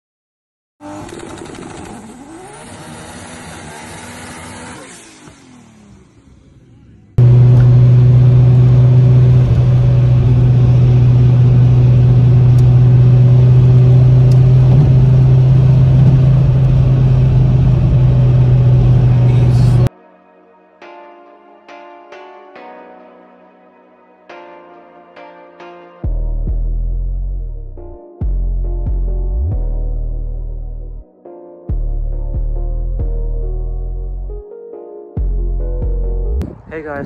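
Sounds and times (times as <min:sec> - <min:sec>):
car engine drone in cabin: 0:00.8 - 0:19.9
road and wind noise: 0:01.0 - 0:19.9, 0:36.4 - 0:37.0.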